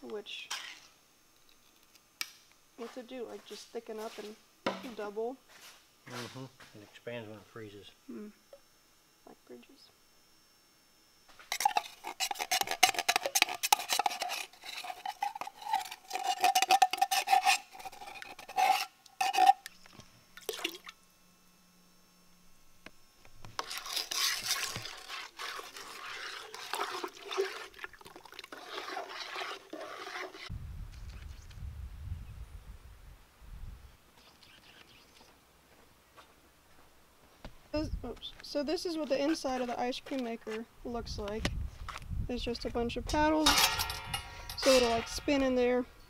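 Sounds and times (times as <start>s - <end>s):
utensil scraping metal pot: 11.4s - 19.8s, 23.5s - 30.5s, 43.3s - 45.6s
wind rumble on microphone: 30.5s - 34.0s, 37.8s - 38.2s, 40.9s - 45.3s.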